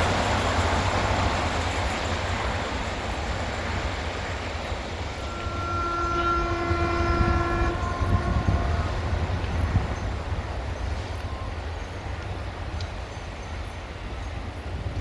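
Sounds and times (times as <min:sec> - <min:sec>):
train engines and wheels rumbling: 0:00.0 - 0:15.0
train horn blast: 0:05.2 - 0:09.8.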